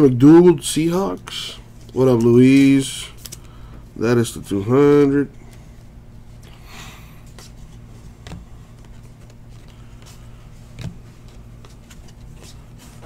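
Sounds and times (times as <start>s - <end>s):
trading cards flipped by hand: 7.3s - 13.0s.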